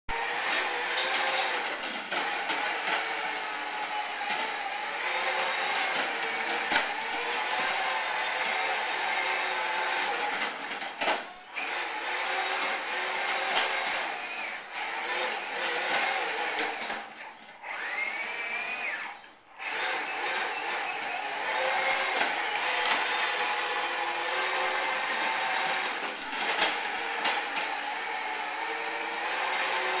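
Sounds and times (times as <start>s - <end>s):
plastic wheels rumbling on tile: 0.1s - 30.0s
small electric motor whirring: 17.6s - 30.0s.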